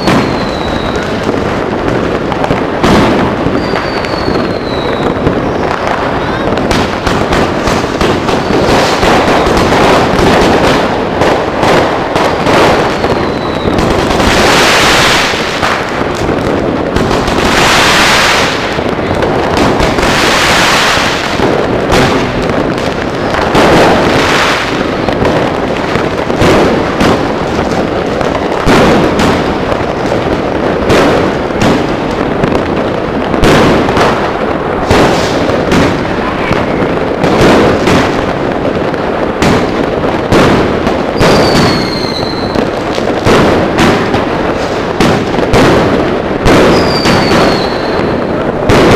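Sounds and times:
fireworks hissing crackle: 0:00.0 - 0:48.9
fireworks launch thumps and bursts: 0:33.3 - 0:36.1, 0:36.7 - 0:48.9.

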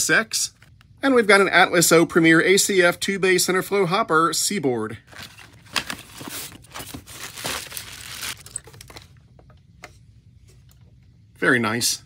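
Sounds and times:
cardboard box rustling: 0:05.1 - 0:09.1
plastic wrapping crinkling: 0:05.1 - 0:09.3.

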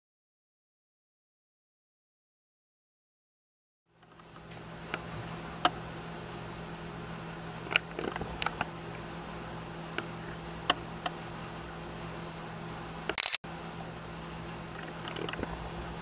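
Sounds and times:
steady low hum: 0:03.9 - 0:16.0.

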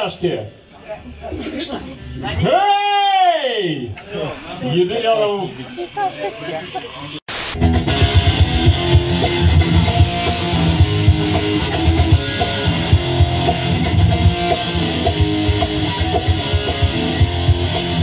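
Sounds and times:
rock band music: 0:07.3 - 0:18.0.

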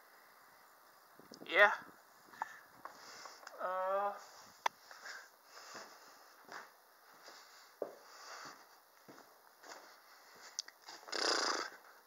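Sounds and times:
footsteps on hay: 0:04.2 - 0:11.0.

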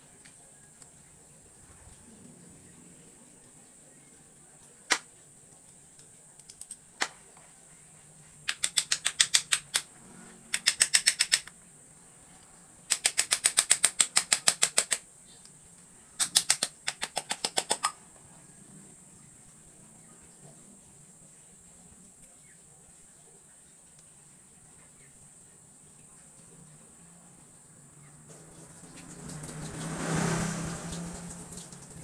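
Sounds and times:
sharp tool clicks: 0:06.4 - 0:07.1, 0:08.5 - 0:09.9, 0:10.5 - 0:11.6, 0:12.9 - 0:15.0, 0:16.2 - 0:18.0
rapid ratchet-like clicking: 0:08.4 - 0:09.9, 0:10.5 - 0:11.6, 0:12.9 - 0:15.0, 0:16.2 - 0:18.0.

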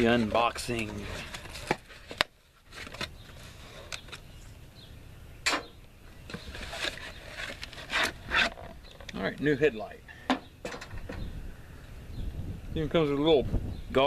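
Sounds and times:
cardboard packaging rustling: 0:00.1 - 0:04.2, 0:06.3 - 0:09.1.

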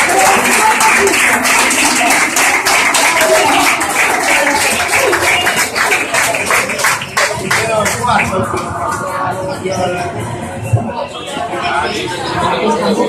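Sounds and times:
crowd clapping and cheering: 0:00.0 - 0:09.3.

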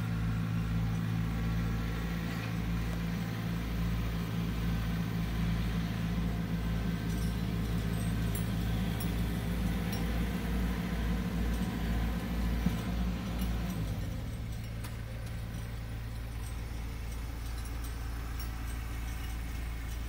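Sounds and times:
tractor engine running: 0:00.0 - 0:20.0
light metallic ticks and rattles: 0:01.9 - 0:20.0.

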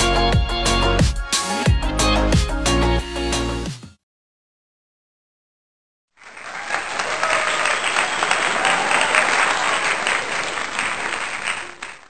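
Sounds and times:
many hands clapping: 0:06.2 - 0:12.0.

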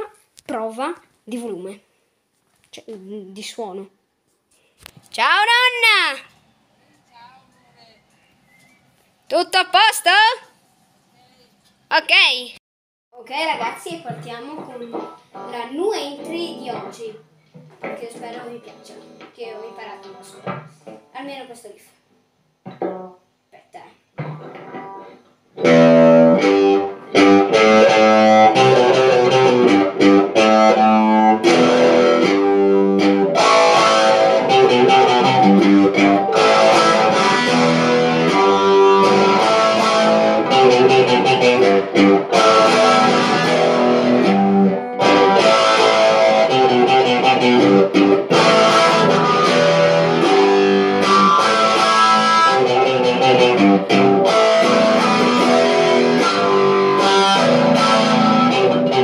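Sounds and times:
electric guitar riff: 0:24.2 - 0:59.0.

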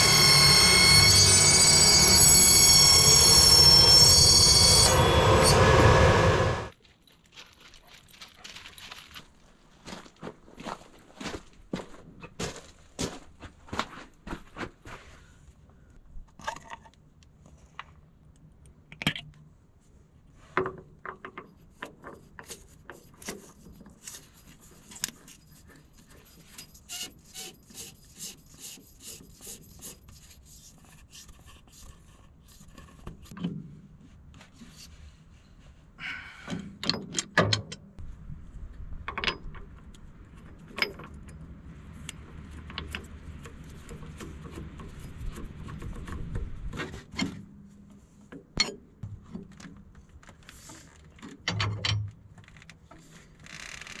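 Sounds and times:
low rumble: 0:04.8 - 0:06.8.

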